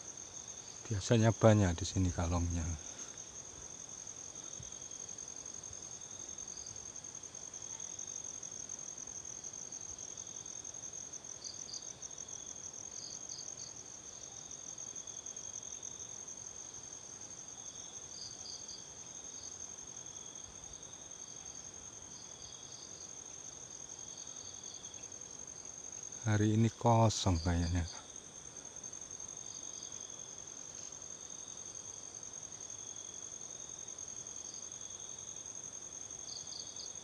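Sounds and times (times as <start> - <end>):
low insect buzz: 0.0 - 37.0
insect fast-pulsing trill: 24.0 - 37.0.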